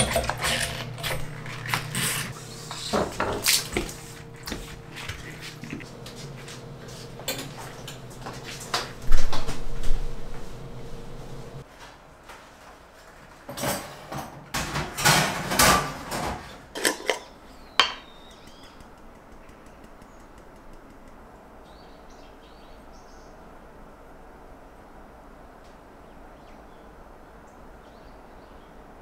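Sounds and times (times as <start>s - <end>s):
tin and bottle clattering: 0.0s - 2.4s.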